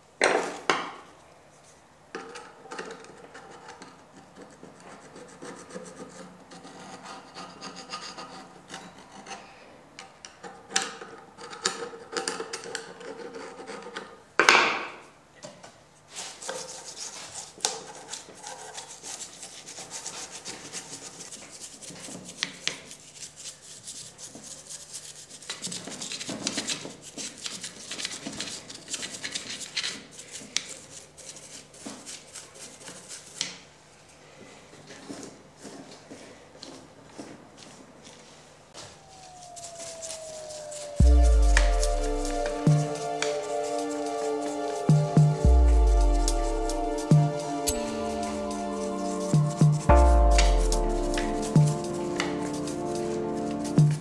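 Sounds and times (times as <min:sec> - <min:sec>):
brush scrubbing metal: 0:16.1 - 0:33.4.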